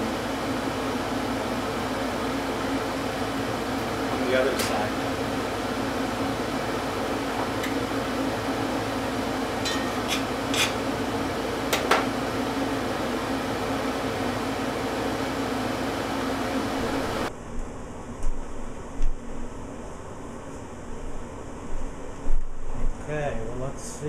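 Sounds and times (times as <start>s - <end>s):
fan whirring: 0.0s - 24.0s
low hum: 16.2s - 23.0s.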